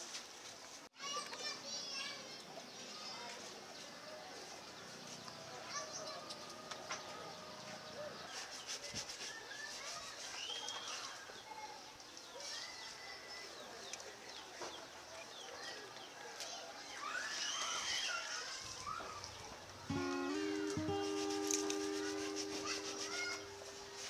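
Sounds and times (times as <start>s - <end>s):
faint distant voices: 0.0s - 24.0s
bird chirps: 18.8s - 24.0s.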